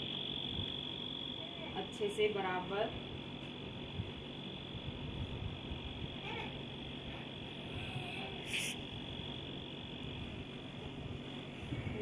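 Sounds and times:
steady high-pitched tone: 0:07.7 - 0:09.8.

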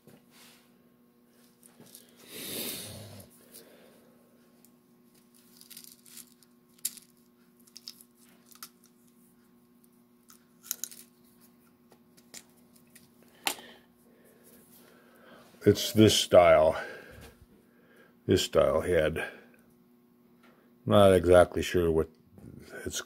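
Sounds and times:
steady low hum: 0:00.0 - 0:23.0
small parts clicking: 0:05.2 - 0:08.9, 0:10.2 - 0:11.1.

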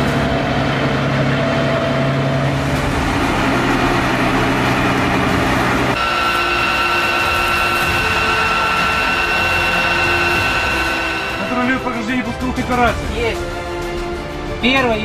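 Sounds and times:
heavy vehicle engine running: 0:00.0 - 0:12.4
high-pitched whine: 0:02.6 - 0:12.8.

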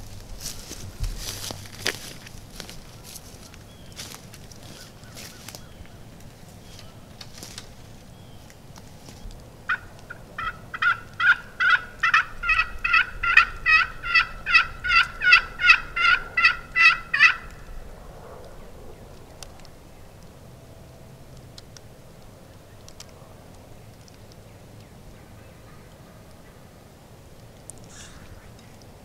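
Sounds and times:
turkey yelps: 0:09.7 - 0:17.6, 0:27.9 - 0:28.4.

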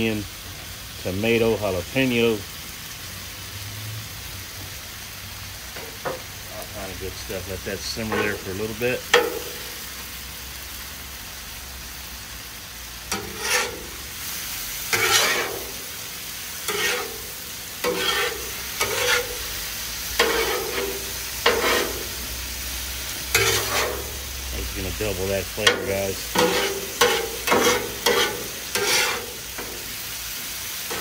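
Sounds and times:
food sizzling on a griddle: 0:00.0 - 0:31.0
metal spatula scraping griddle: 0:05.6 - 0:09.8, 0:13.0 - 0:31.0.

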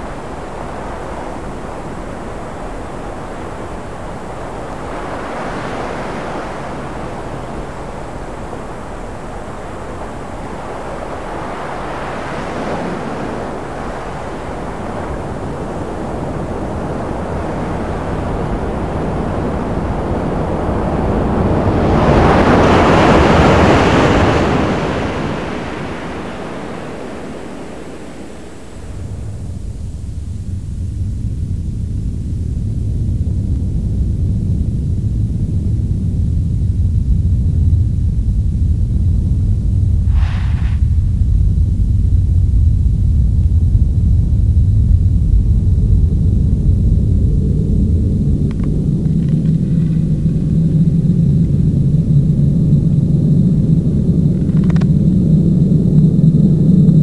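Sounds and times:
sea surf on sandy beach: 0:00.0 - 0:29.2.

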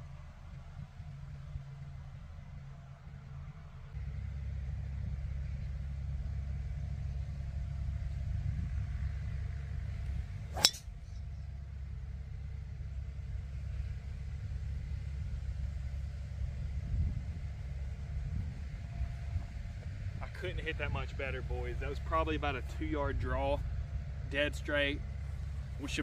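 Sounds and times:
steady low rumble: 0:00.0 - 0:26.0
golf club striking ball: 0:10.5 - 0:10.9.

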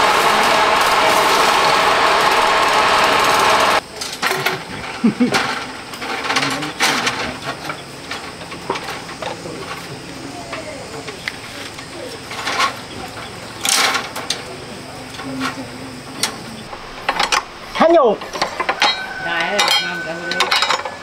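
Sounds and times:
loud motor running: 0:00.0 - 0:03.8
metal clicks of rebar tying: 0:16.2 - 0:17.5, 0:18.2 - 0:21.0.

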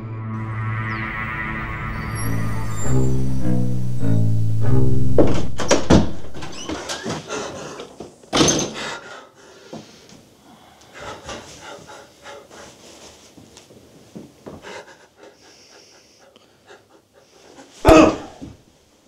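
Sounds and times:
low bowed-string music: 0:00.0 - 0:06.6
scuffle knocks and thuds: 0:05.2 - 0:08.8.

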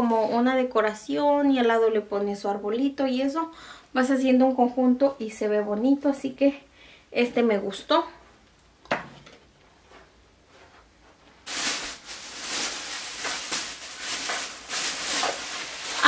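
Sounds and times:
plastic bag rustling: 0:10.5 - 0:16.0.

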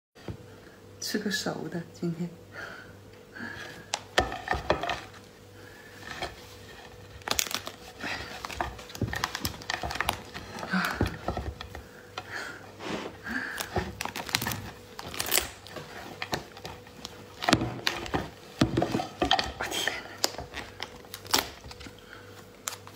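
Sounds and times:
lobster shell cracking: 0:06.2 - 0:12.4, 0:13.4 - 0:22.9.

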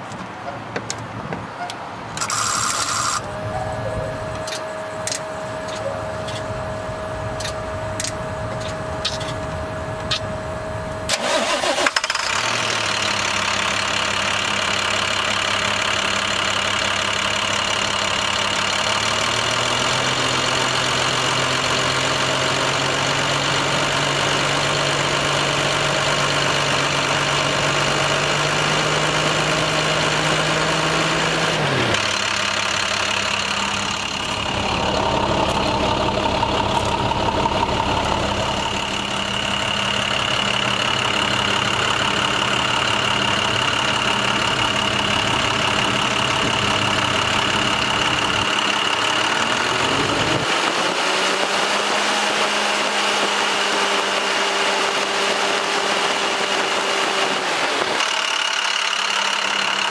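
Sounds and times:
diesel engine cranking and idling: 0:00.0 - 0:59.9
steady high tone: 0:02.2 - 0:11.1, 0:32.0 - 0:48.4
sharp clicks: 0:10.0 - 0:10.3.

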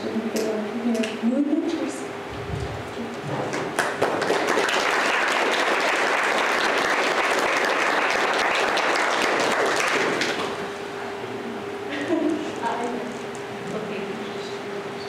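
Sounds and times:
congregation applauding: 0:03.5 - 0:10.7.

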